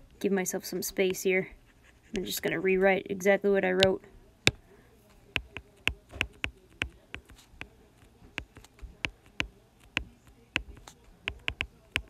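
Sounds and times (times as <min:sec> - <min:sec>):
stylus tapping on glass screen: 0:05.3 - 0:07.7, 0:08.3 - 0:12.0.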